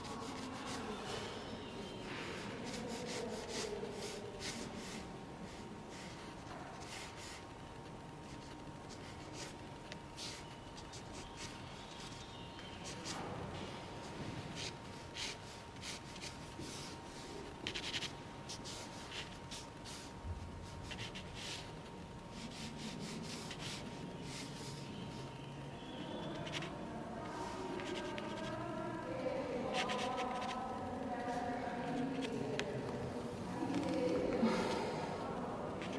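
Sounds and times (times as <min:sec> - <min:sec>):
pencil sketching on paper: 0:00.0 - 0:01.1, 0:02.4 - 0:07.4, 0:22.3 - 0:25.0
quiet voices: 0:22.6 - 0:35.9.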